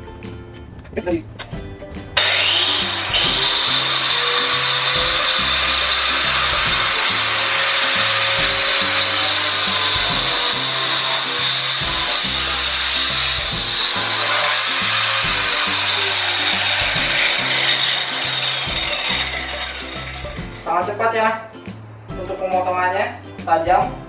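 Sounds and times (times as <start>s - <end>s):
blade rasping through wood: 2.2s - 20.7s
angle grinder saw blade whining: 2.2s - 21.1s.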